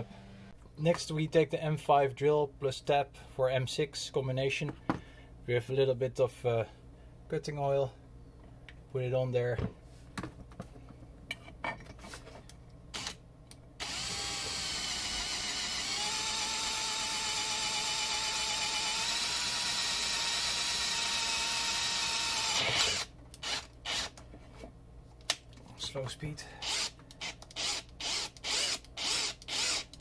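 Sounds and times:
cordless drill motor whine: 0:13.8 - 0:24.1, 0:26.6 - 0:30.0.

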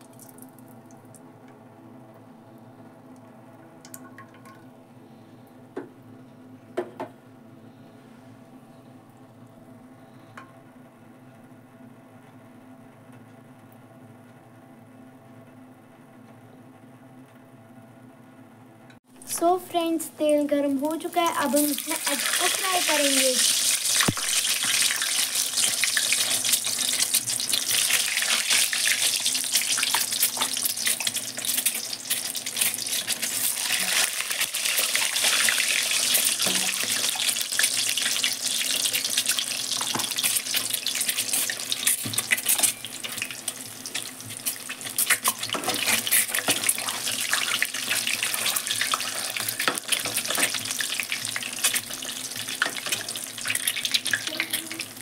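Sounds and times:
eggs sizzling in hot oil: 0:19.5 - 0:55.0
oil crackling pops: 0:23.9 - 0:24.8.

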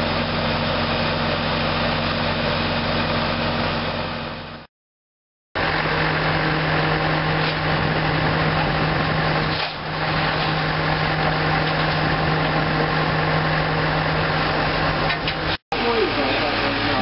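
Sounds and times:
steam locomotive hissing roar: 0:15.8 - 0:17.0.

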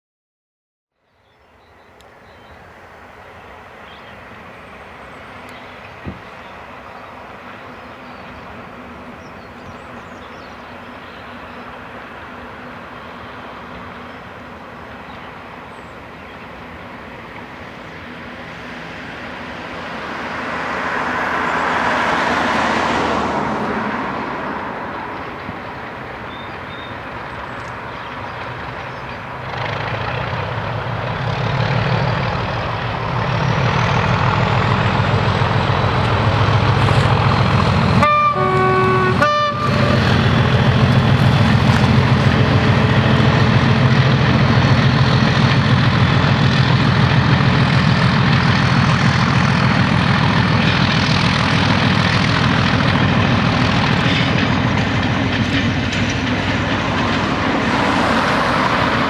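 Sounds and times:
diesel locomotive engine at full power: 0:01.2 - 0:59.0
road vehicle passing: 0:15.6 - 0:59.0
two-tone train horn: 0:37.8 - 0:40.3.

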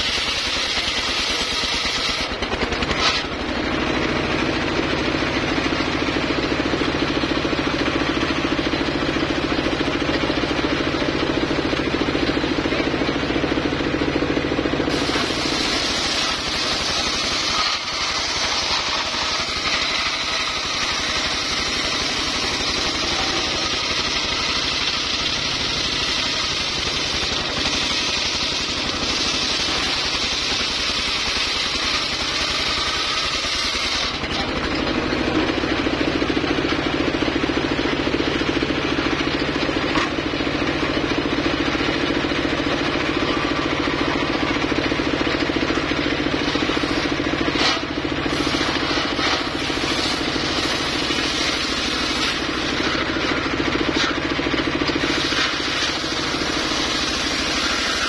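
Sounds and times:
circular saw cutting wood: 0:00.0 - 0:58.0.

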